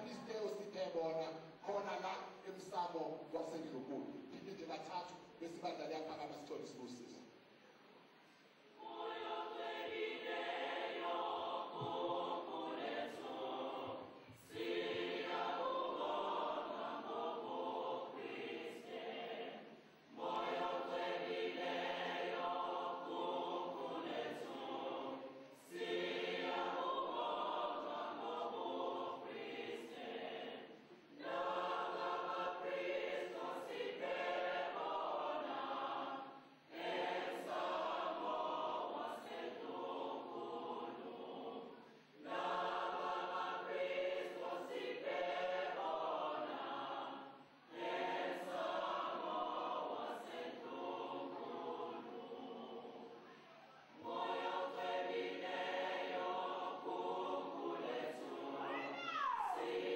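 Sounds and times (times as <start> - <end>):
choir singing a hymn: 8.6 - 59.9.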